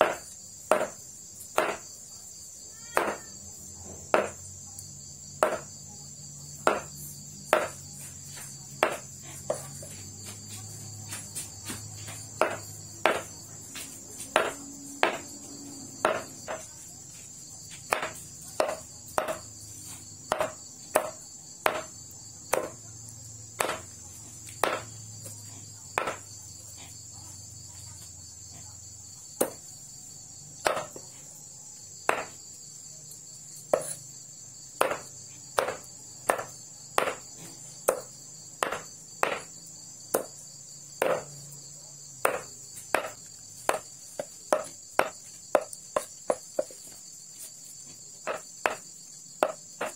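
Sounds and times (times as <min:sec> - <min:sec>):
cleaver chopping on wooden block: 0:00.0 - 0:01.9, 0:02.9 - 0:03.3, 0:04.1 - 0:04.4, 0:05.4 - 0:05.7, 0:06.6 - 0:07.8, 0:08.4 - 0:09.6, 0:12.4 - 0:13.4, 0:14.3 - 0:15.3, 0:16.0 - 0:16.7, 0:17.8 - 0:19.5, 0:20.2 - 0:22.8, 0:23.6 - 0:25.1, 0:26.0 - 0:26.3, 0:29.4 - 0:29.7, 0:30.6 - 0:31.1, 0:32.0 - 0:32.4, 0:33.6 - 0:34.1, 0:34.8 - 0:40.4, 0:41.0 - 0:41.4, 0:42.2 - 0:47.0, 0:47.8 - 0:49.9
crickets chirring: 0:00.0 - 0:49.9.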